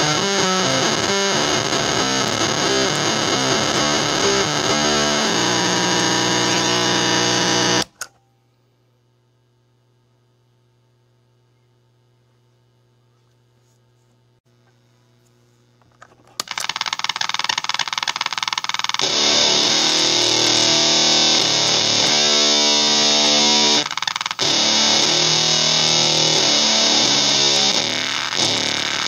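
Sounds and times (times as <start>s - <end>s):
electric guitar fuzz riff: 0.0s - 7.9s, 18.8s - 29.0s
fuzz pedal fluttering chatter: 16.5s - 29.0s.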